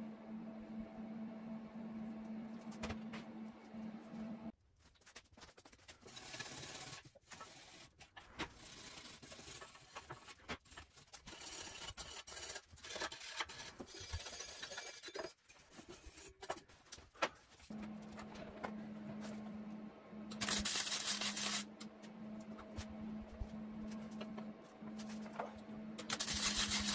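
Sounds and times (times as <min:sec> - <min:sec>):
steady hum: 0:00.0 - 0:04.5, 0:17.7 - 0:26.9
steel tubes scraping and knocking: 0:09.0 - 0:16.9
welding arc crackling: 0:20.3 - 0:21.8, 0:26.0 - 0:26.9.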